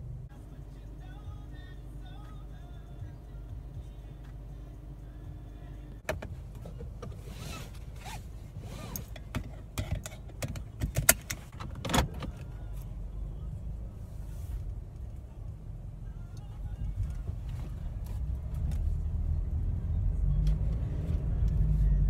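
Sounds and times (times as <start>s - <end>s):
car engine rumble: 0.0s - 22.0s
seatbelt buckle clicking: 6.0s - 12.5s
seatbelt webbing rustling: 6.1s - 12.5s.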